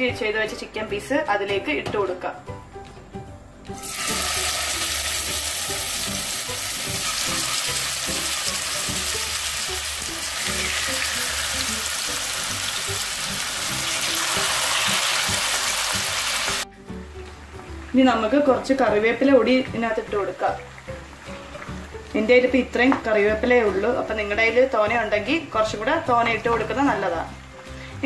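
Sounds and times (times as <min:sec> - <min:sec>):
chicken sizzling in oil: 0:03.8 - 0:22.7.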